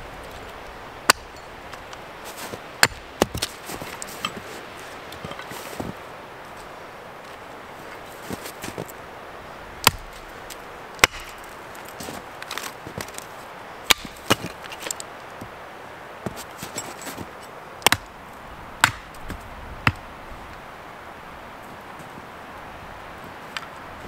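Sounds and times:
axe chopping wood: 1.0s - 1.4s, 2.8s - 3.6s, 9.8s - 10.1s, 11.0s - 11.4s, 13.9s - 14.8s, 17.8s - 18.1s, 18.8s - 20.0s.

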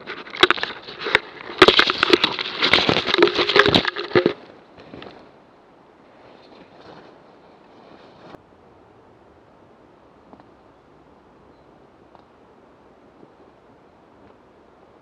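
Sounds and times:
camera tumbling through undergrowth: 0.0s - 5.3s.

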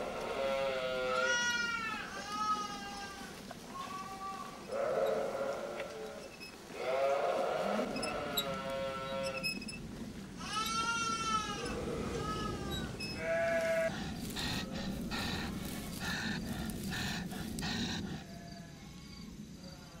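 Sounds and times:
sheep bleating: 10.4s - 13.9s.

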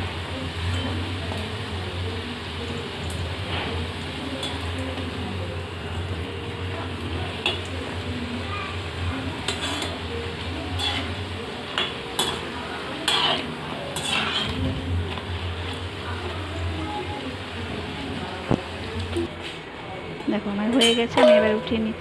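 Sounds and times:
food sizzling in hot oil: 0.0s - 19.3s
metal spoon scraping a pan: 9.4s - 10.1s, 10.7s - 15.9s.

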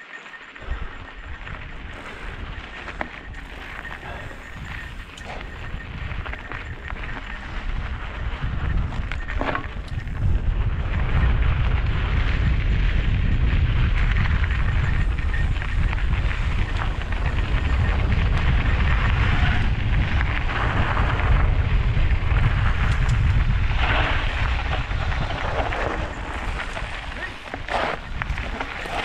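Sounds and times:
wind buffeting microphone: 0.6s - 29.0s
tyres crunching over gravel: 1.6s - 10.3s, 22.8s - 29.0s.

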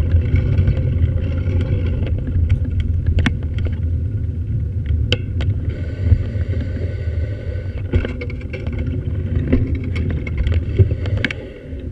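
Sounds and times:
clicks and rattles: 7.9s - 11.4s.

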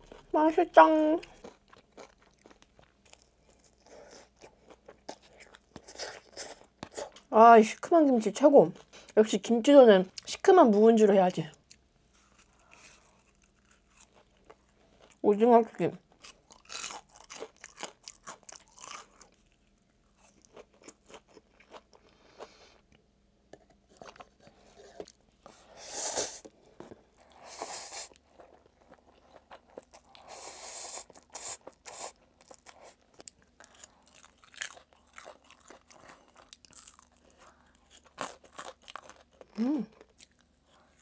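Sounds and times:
crunchy chewing: 1.2s - 7.3s, 11.7s - 15.2s, 16.2s - 22.8s, 26.3s - 41.0s.

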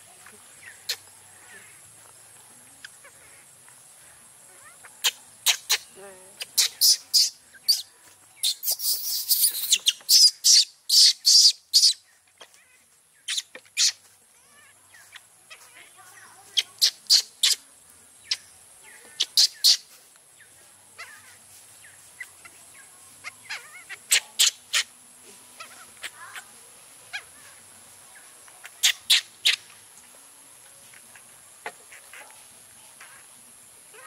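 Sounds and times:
baby monkey squeals: 4.6s - 15.7s, 16.6s - 17.6s, 18.3s - 19.9s, 21.0s - 21.4s, 23.2s - 24.9s, 25.6s - 26.5s, 28.6s - 29.7s.

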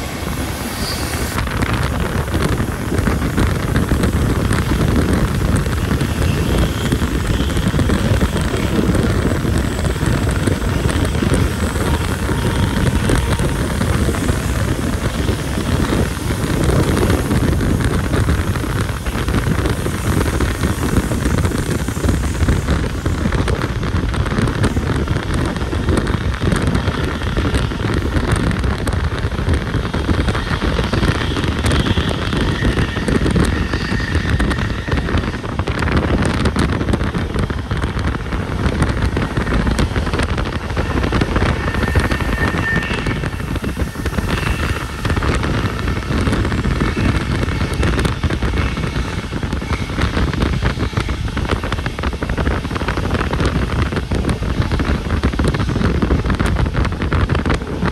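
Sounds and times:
low rumble: 0.0s - 57.9s
wind buffeting microphone: 0.0s - 57.9s.

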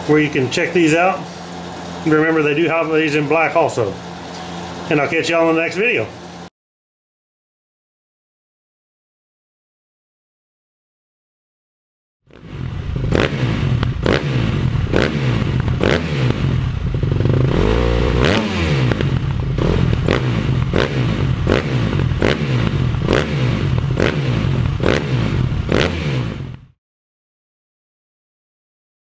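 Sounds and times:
engine-like low drone: 12.3s - 26.8s.

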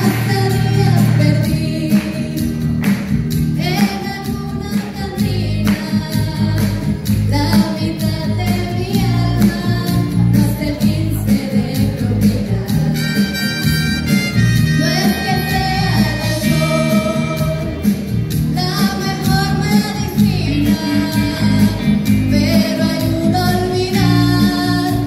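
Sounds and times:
woman singing into microphone: 0.0s - 2.7s, 3.5s - 13.6s, 14.6s - 17.9s, 18.5s - 25.0s
amplified instrumental music with beat: 0.0s - 25.0s.

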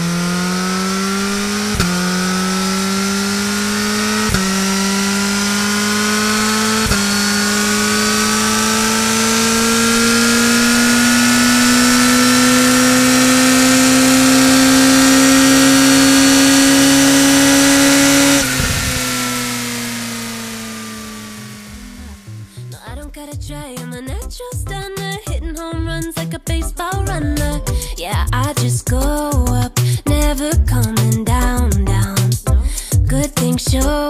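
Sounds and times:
motorcycle engine accelerating: 0.0s - 22.9s.

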